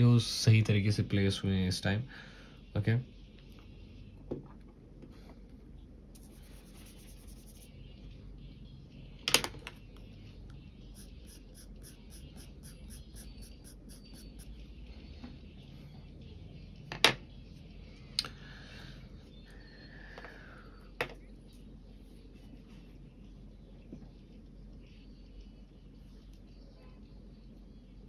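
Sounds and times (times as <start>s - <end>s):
pencil scratching on paper: 6.2s - 7.7s, 10.9s - 14.6s.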